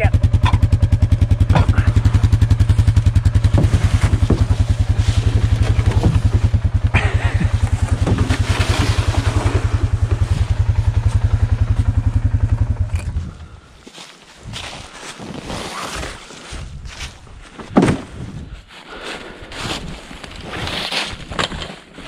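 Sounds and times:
atv engine idling: 0:00.0 - 0:13.7
handling knocks: 0:01.5 - 0:11.8.

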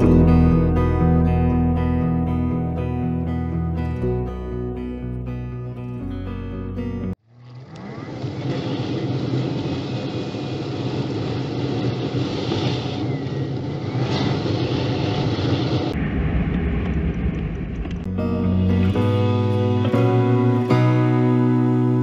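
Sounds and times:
road noise: 0:07.2 - 0:20.8.

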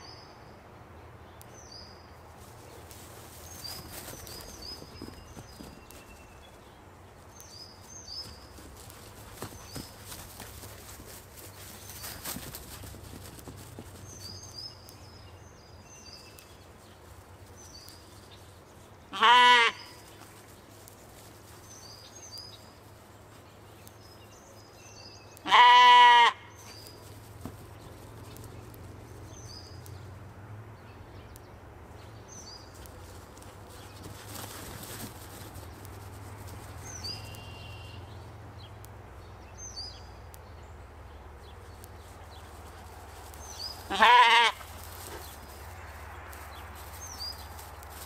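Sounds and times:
sheep bleating: 0:19.1 - 0:20.0, 0:25.4 - 0:26.5, 0:43.9 - 0:44.7.

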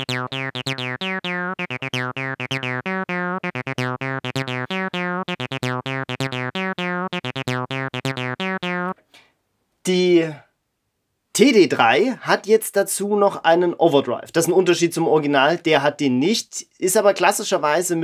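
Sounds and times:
acid bass synth pattern: 0:00.0 - 0:09.0.

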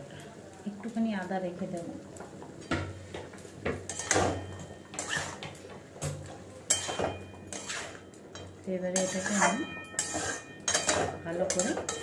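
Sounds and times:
metal spatula scraping a pan: 0:03.8 - 0:05.6, 0:06.2 - 0:12.0.

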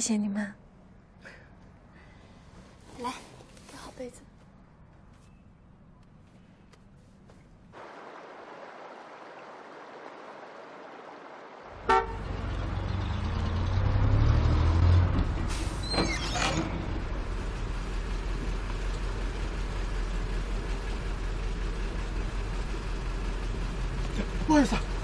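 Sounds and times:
bus engine rumbling: 0:08.6 - 0:25.0
vehicle horn toot: 0:11.8 - 0:12.4.

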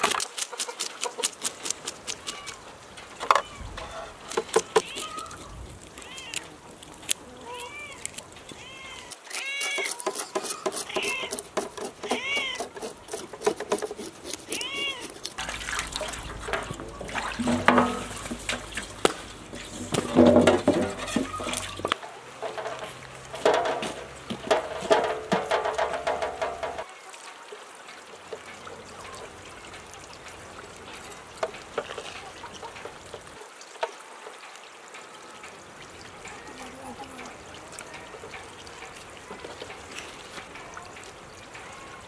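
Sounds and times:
cat meowing: 0:03.3 - 0:06.6, 0:07.3 - 0:11.4, 0:12.0 - 0:12.7, 0:14.5 - 0:15.2, 0:20.9 - 0:21.9
knife scraping fish on metal tray: 0:09.0 - 0:15.4.

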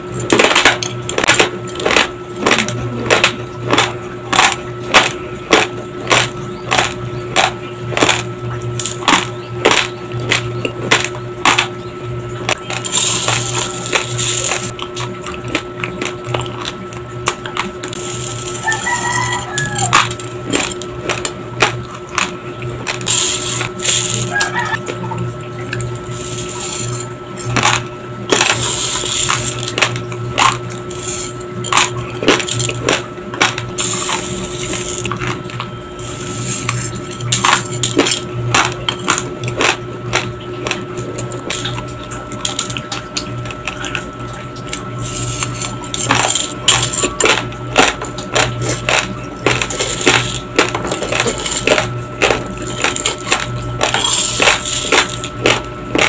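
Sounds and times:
steady hum: 0:00.0 - 0:56.0
grains clicking against plastic scoop: 0:00.3 - 0:11.7, 0:12.5 - 0:24.8, 0:25.9 - 0:42.8, 0:44.7 - 0:56.0
rice crunched between teeth: 0:12.6 - 0:24.8, 0:26.0 - 0:44.1, 0:44.7 - 0:56.0.

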